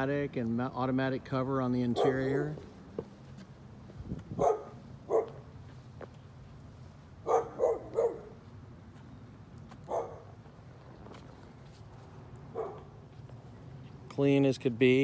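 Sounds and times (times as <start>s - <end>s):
dog barking: 1.9s - 2.4s, 4.4s - 5.4s, 7.2s - 8.4s, 9.9s - 10.3s, 12.5s - 12.9s.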